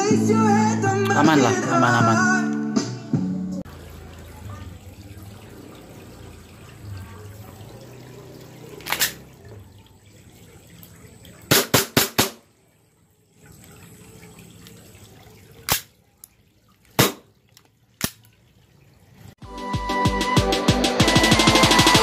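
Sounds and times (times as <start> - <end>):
airsoft pistol shots: 11.5 - 12.4, 17.0 - 17.3.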